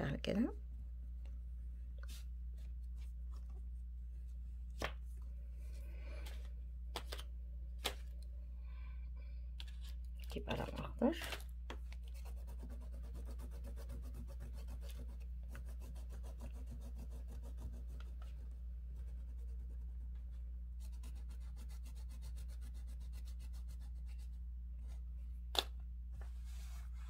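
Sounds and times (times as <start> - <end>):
pastel scribbling on paper: 12.1 - 20.0, 20.8 - 24.4.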